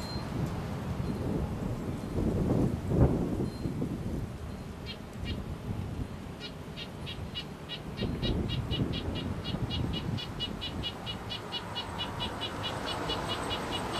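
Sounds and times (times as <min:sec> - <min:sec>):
small bird calling: 0:06.4 - 0:13.9.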